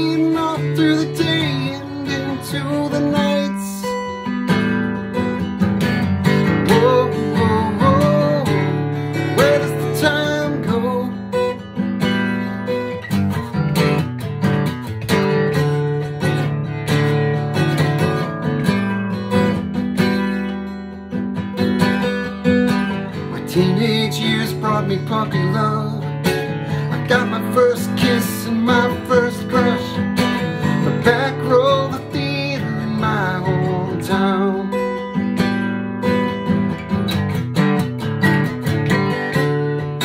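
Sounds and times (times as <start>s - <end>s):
man singing: 0.0s - 4.2s, 6.3s - 11.6s, 23.1s - 35.2s
acoustic guitar strumming: 0.0s - 40.0s.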